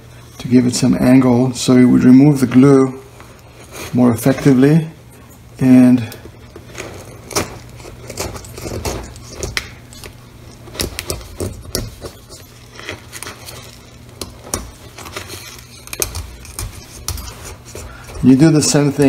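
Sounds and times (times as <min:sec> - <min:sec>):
steady low hum: 0:00.0 - 0:19.0
metal blade scraping ceramic: 0:06.8 - 0:18.8.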